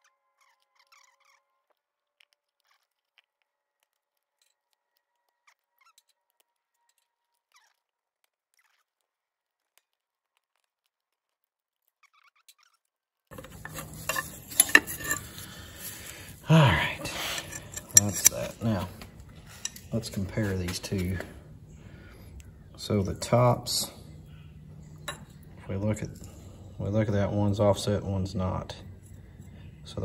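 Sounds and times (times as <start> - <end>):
metal brake parts clinking: 13.3 - 21.2.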